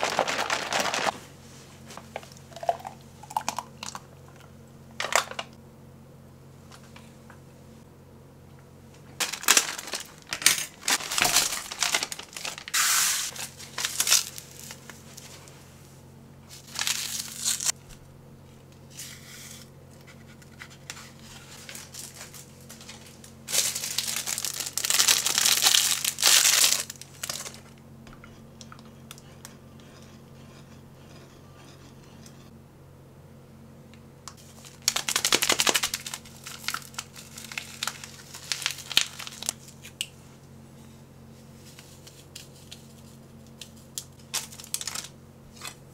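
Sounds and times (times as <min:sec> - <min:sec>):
plastic and foil packaging tearing: 0:00.0 - 0:01.1, 0:09.2 - 0:15.0, 0:16.6 - 0:17.8, 0:20.8 - 0:27.7, 0:34.4 - 0:39.8, 0:44.2 - 0:45.7.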